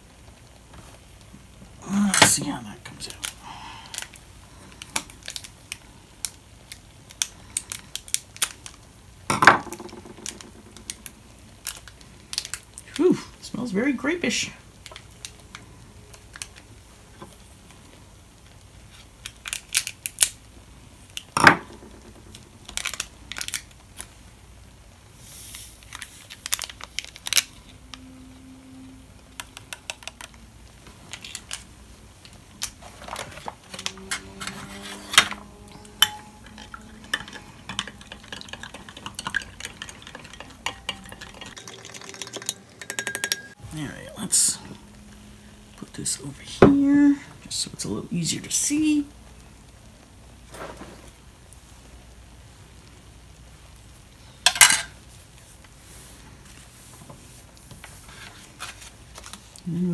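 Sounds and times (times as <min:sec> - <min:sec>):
spoon clinking against glass: 0:36.0 - 0:43.6.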